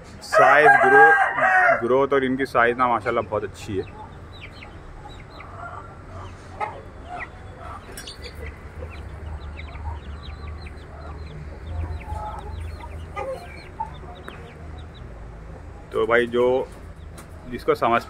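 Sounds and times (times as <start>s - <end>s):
chicks peeping: 0.4s - 18.0s.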